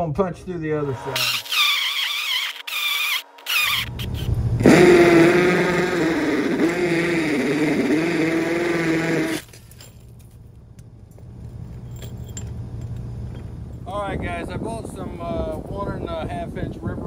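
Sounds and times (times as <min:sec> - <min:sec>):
electric drill grinding through wall: 0:01.0 - 0:09.5.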